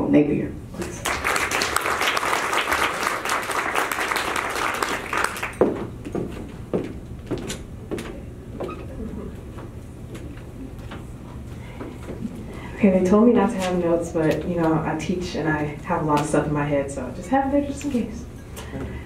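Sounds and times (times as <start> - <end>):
audience applauding: 0.8 - 5.6.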